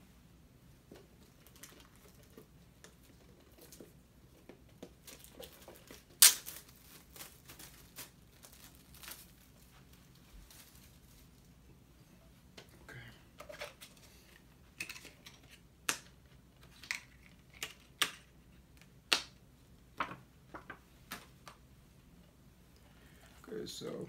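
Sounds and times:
plastic wrapping crinkling: 0:04.9 - 0:11.6.

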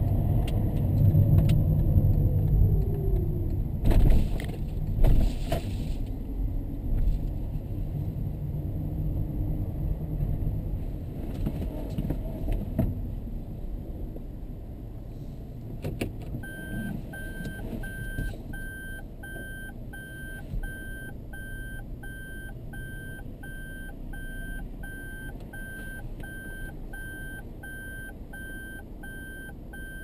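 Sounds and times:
low rumble of van moving: 0:00.0 - 0:30.0
short warning beeps: 0:16.4 - 0:30.0.

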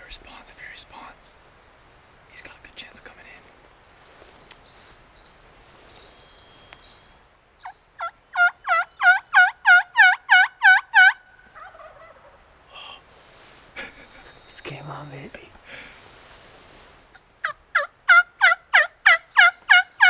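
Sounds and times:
turkey yelps: 0:08.0 - 0:12.4, 0:17.4 - 0:20.0.

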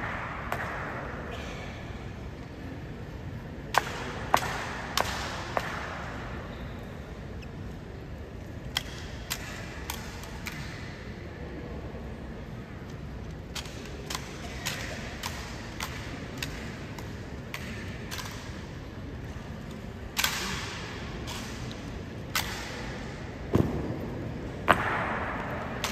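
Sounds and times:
low crowd murmur: 0:00.0 - 0:25.9.

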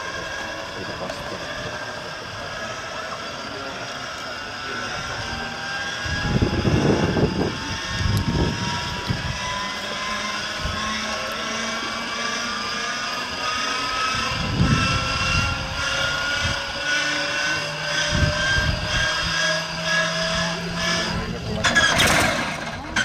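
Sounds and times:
engine starter whine rising: 0:00.0 - 0:23.0.

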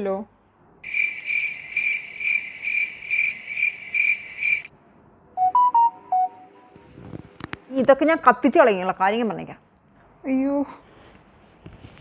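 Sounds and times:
cricket chirping: 0:00.8 - 0:04.7.

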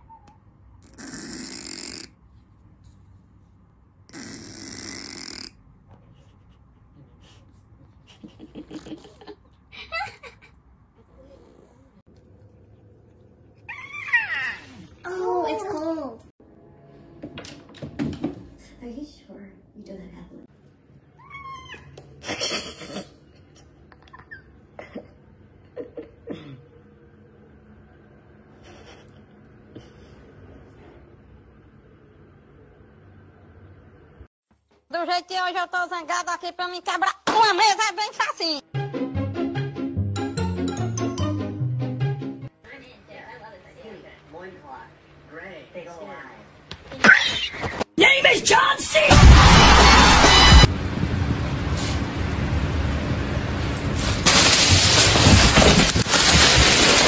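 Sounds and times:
cat snoring: 0:00.8 - 0:02.1, 0:04.1 - 0:05.6
cat mewing: 0:21.2 - 0:22.1.

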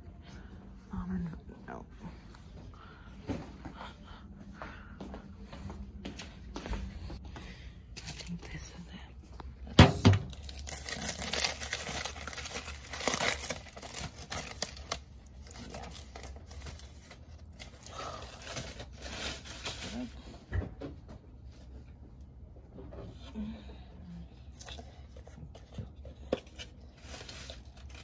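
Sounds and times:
aluminium foil crinkling: 0:10.1 - 0:20.3, 0:26.2 - 0:28.0.

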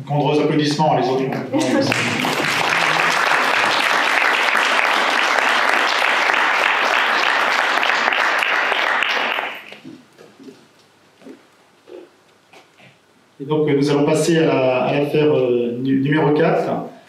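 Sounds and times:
roomful of people applauding: 0:01.6 - 0:09.9.

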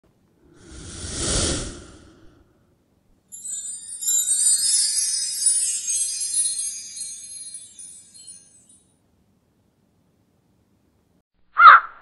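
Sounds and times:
jingling bell-like music: 0:03.3 - 0:08.9.

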